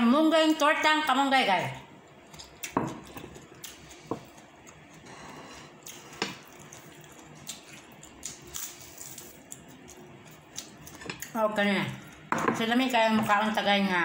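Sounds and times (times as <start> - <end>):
wet chewing: 2.1 - 5.1, 5.8 - 12.3.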